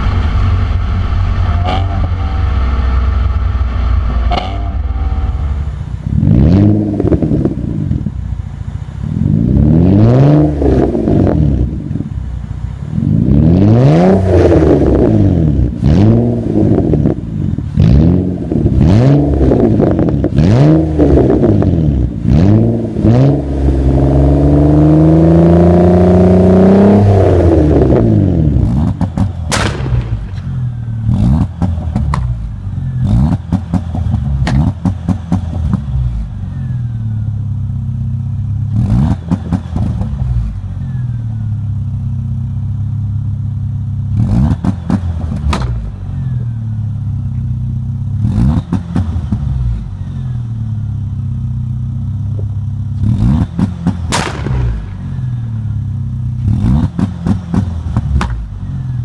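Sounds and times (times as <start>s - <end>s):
sports car engines revving: 0.0s - 59.0s
exhaust pops and crackles: 28.7s - 30.6s, 31.3s - 32.4s, 33.3s - 36.0s, 39.1s - 40.3s, 44.5s - 45.8s, 53.4s - 55.2s, 56.4s - 58.6s.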